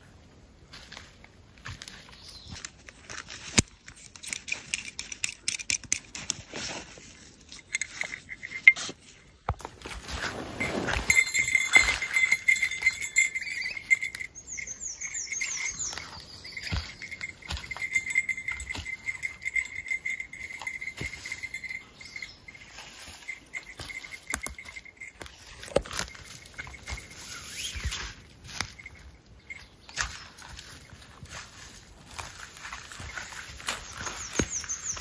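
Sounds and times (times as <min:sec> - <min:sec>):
jingle bell tinkling: 0:06.8 - 0:09.3, 0:10.2 - 0:35.0
high falling chirps: 0:10.6 - 0:25.5.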